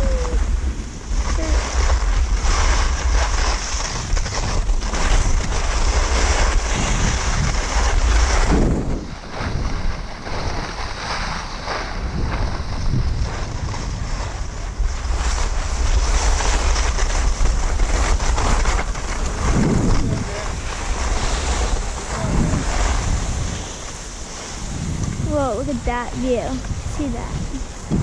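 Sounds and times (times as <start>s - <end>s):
wind buffeting microphone: 0.0s - 28.0s
skis scraping on snow: 0.1s - 28.0s.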